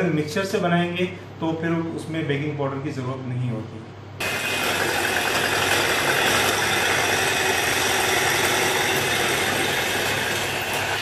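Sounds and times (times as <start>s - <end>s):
electric hand mixer whisking: 4.2s - 11.0s.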